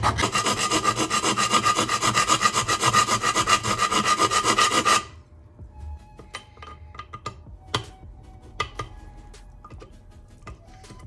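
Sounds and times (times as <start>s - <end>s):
hand file rasping metal: 0.0s - 5.2s.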